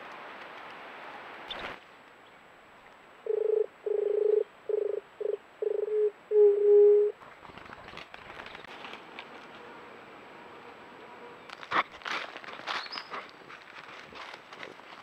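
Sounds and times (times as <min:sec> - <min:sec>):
dove cooing: 0:03.3 - 0:07.2
rustling leaf litter: 0:07.3 - 0:09.8, 0:11.4 - 0:15.0.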